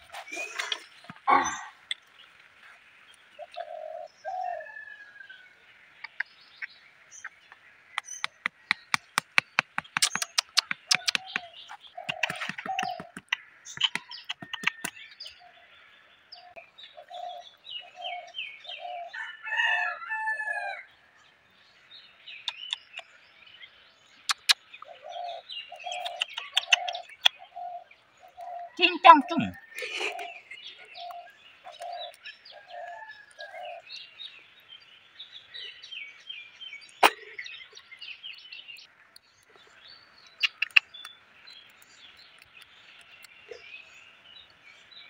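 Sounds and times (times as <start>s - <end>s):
birds calling and chirping: 0.0s - 45.0s
hammer tapping stakes: 8.0s - 15.0s, 25.9s - 27.4s.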